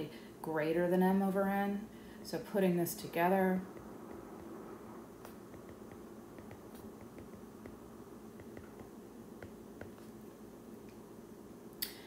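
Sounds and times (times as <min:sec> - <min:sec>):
low room hum: 0:00.0 - 0:12.0
stylus tapping on glass screen: 0:05.2 - 0:07.8, 0:08.4 - 0:10.1.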